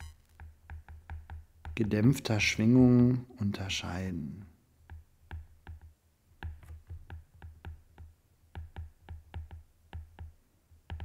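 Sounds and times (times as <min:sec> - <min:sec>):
stylus tapping on glass screen: 0:00.0 - 0:02.0, 0:04.8 - 0:11.0.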